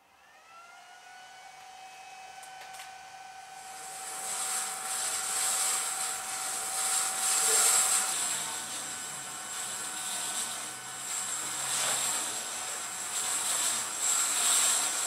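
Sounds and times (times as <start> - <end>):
bandsaw motor whine: 0.0 - 15.0
rushing hiss of saw: 3.6 - 15.0.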